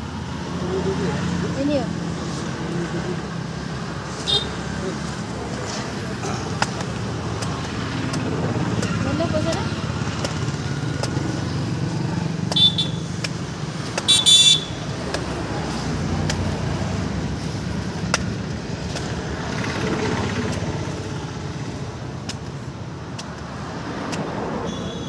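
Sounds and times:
road traffic: 0:00.0 - 0:25.0
vehicle horn tooting: 0:12.5 - 0:13.1, 0:14.1 - 0:14.8, 0:24.7 - 0:25.0.

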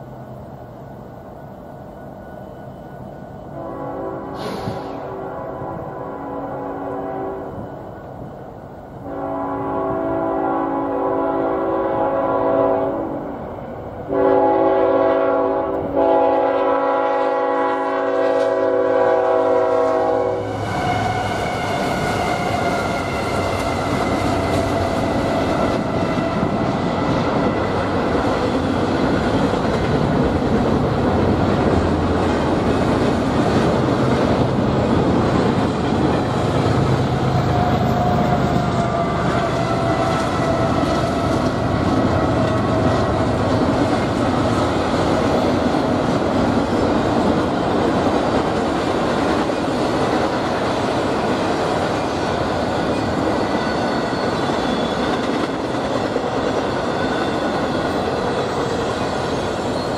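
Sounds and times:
freight train wheels rumbling on rails: 0:00.0 - 0:59.9
locomotive air horn blasts: 0:03.5 - 0:07.6, 0:09.0 - 0:13.3, 0:14.1 - 0:27.8, 0:37.3 - 0:41.4.

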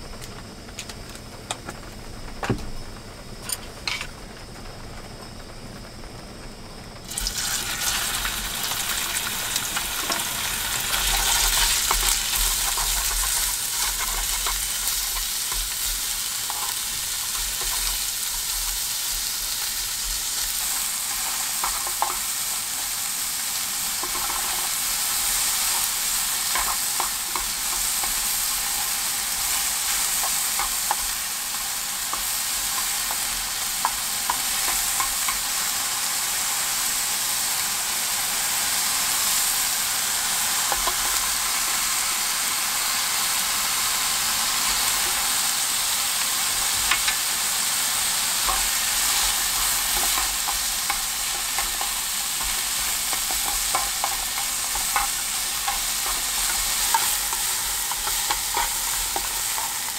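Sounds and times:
pork sizzling in a pan: 0:06.9 - 0:59.9
chopsticks clicking against pan: 0:20.6 - 0:22.3, 0:24.0 - 0:35.6, 0:40.7 - 0:41.2, 0:46.9 - 0:47.2, 0:48.4 - 0:59.9.

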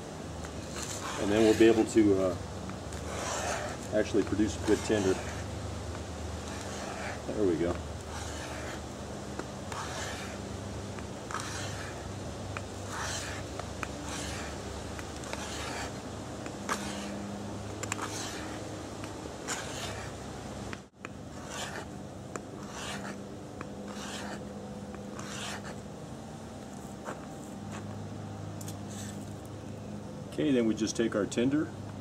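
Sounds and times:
knife scraping bamboo: 0:00.5 - 0:02.2, 0:02.9 - 0:20.2, 0:21.3 - 0:21.9, 0:22.6 - 0:23.2, 0:23.8 - 0:24.4, 0:25.1 - 0:25.8.

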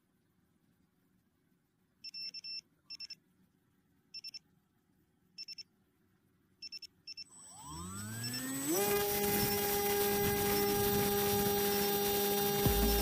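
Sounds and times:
electronic buzzer beeping: 0:06.6 - 0:13.0.

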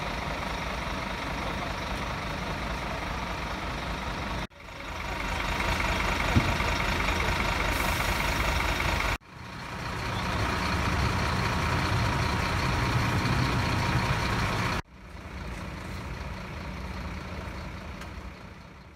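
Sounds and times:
fire engines idling: 0:00.0 - 0:18.9.

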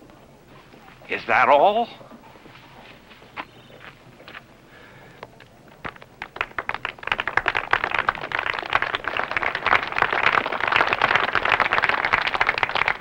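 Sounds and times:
crowd applause: 0:05.8 - 0:13.0.

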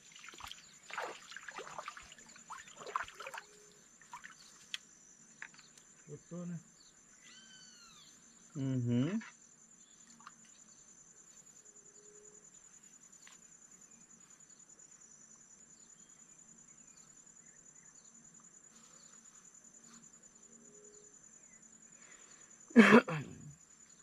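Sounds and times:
insects trilling: 0:00.0 - 0:24.0
faint ticks: 0:04.2 - 0:06.1.

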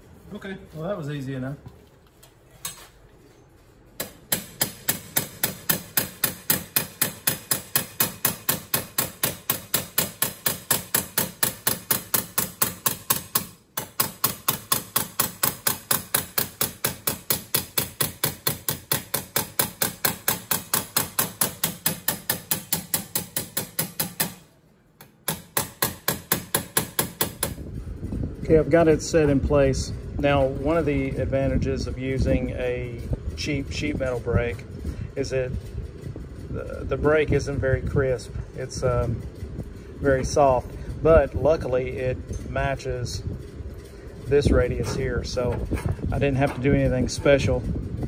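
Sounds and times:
hammer striking sheet metal: 0:04.0 - 0:27.6.

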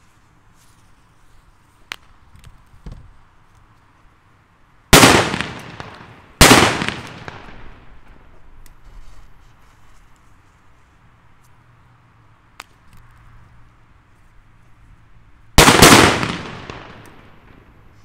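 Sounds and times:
firecracker bangs echoing: 0:04.9 - 0:08.3, 0:15.6 - 0:17.9.

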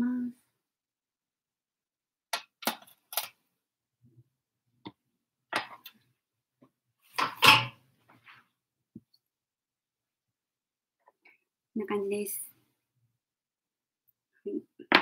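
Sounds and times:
serving tray clattering: 0:07.2 - 0:07.8.

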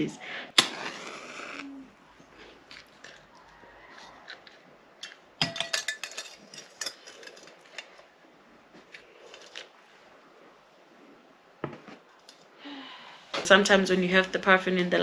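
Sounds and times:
small hard objects clinking: 0:02.7 - 0:08.0.

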